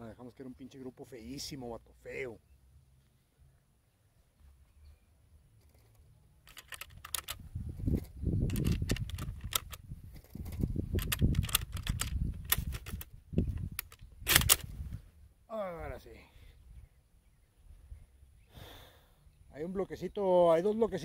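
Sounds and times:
clicks and rustling handling noises: 0:05.6 - 0:14.7.

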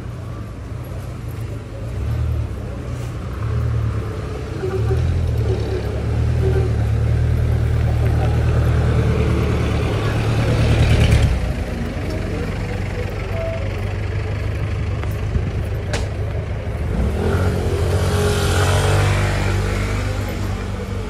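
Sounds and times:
street traffic engines: 0:00.0 - 0:21.0
vehicle engine revving: 0:14.4 - 0:21.0.

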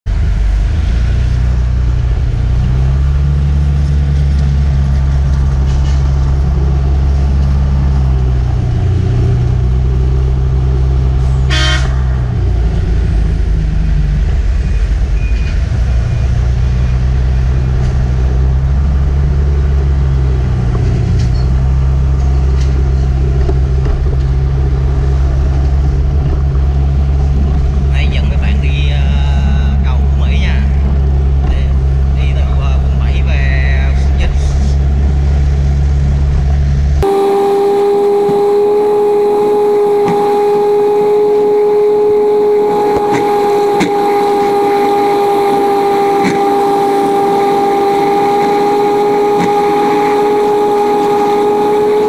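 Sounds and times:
vehicle driving drone: 0:00.1 - 0:52.0
vehicle horn honk: 0:11.4 - 0:12.2, 0:37.0 - 0:40.8.

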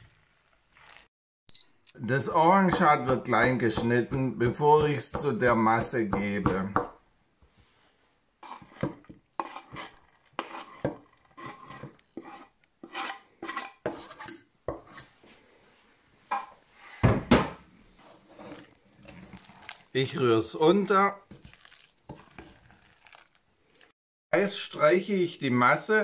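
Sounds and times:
knife scraping on wooden board: 0:08.4 - 0:15.2.

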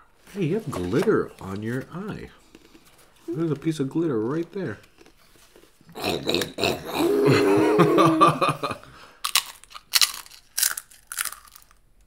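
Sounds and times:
child crunching tortilla chip: 0:09.2 - 0:11.8.

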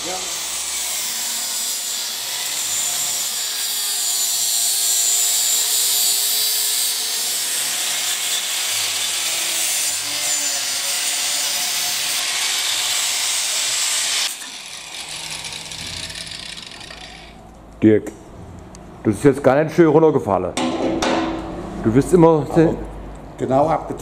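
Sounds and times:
angle grinder cutting steel: 0:00.0 - 0:17.6.

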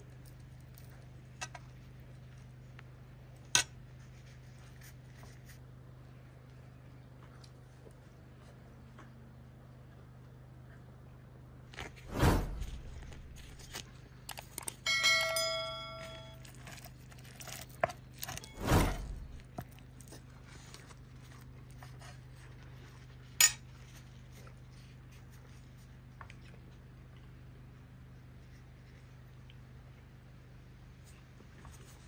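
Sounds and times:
dish ringing bell-like: 0:14.8 - 0:16.5.

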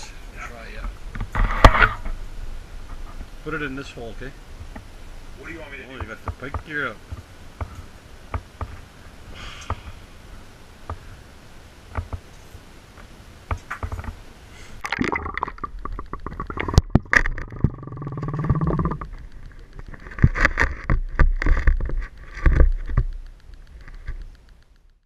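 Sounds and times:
muffled underwater gurgling: 0:14.8 - 0:21.5
underwater scraping: 0:14.8 - 0:23.1.

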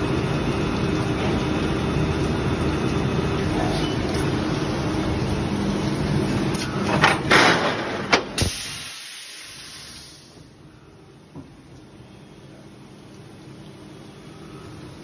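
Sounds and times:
injection molding machine running: 0:00.0 - 0:08.4.

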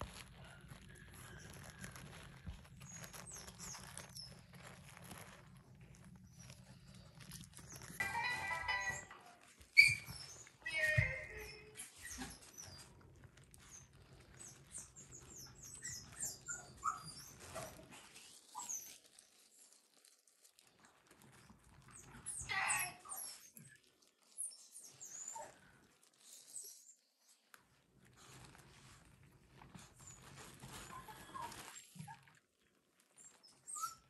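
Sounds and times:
puppies squeaking: 0:01.1 - 0:19.2, 0:29.5 - 0:32.4, 0:33.2 - 0:34.0.

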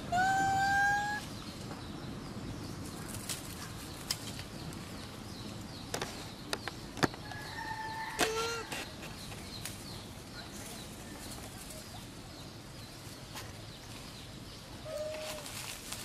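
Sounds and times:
forest ambience: 0:00.0 - 0:16.0
whistled animal call: 0:00.1 - 0:01.2.

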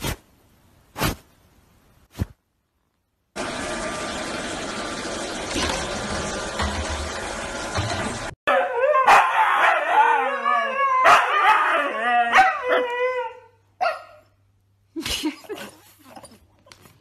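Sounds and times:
huskies howling: 0:08.5 - 0:13.5.

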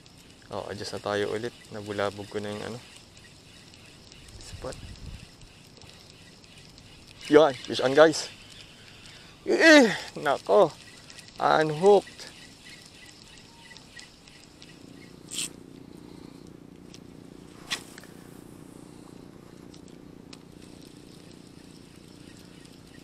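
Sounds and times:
spinning reel whirring: 0:00.0 - 0:15.6, 0:19.8 - 0:23.0
fishing rod swish: 0:17.6 - 0:18.0.

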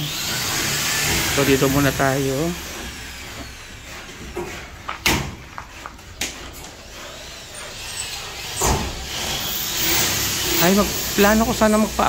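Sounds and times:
construction knocks and clatters: 0:04.1 - 0:06.8.

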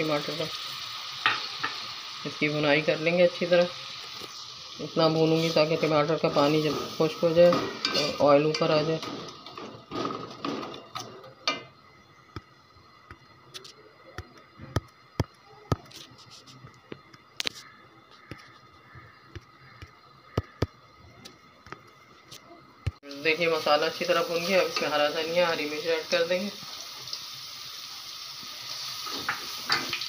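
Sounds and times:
spatula tapping metal pot: 0:19.3 - 0:20.8
spatula stirring frying masala: 0:23.7 - 0:30.0.

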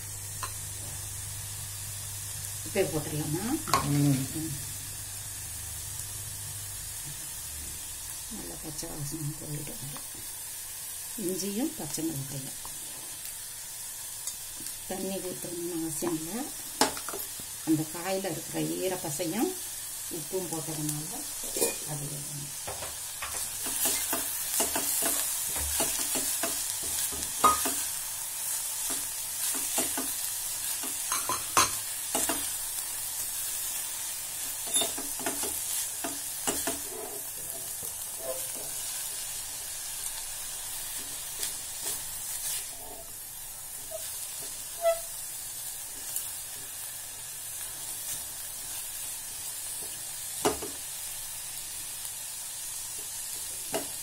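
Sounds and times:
vegetables sizzling in a pot: 0:00.0 - 0:54.0
spatula scraping and tapping pot: 0:22.7 - 0:27.8, 0:28.8 - 0:30.2, 0:34.6 - 0:38.8, 0:43.8 - 0:45.1.

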